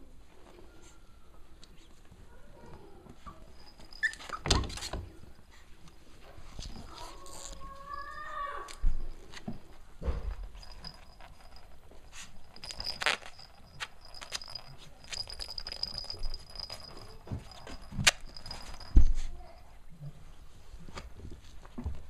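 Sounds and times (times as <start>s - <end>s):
thumps: 8.7s - 19.4s.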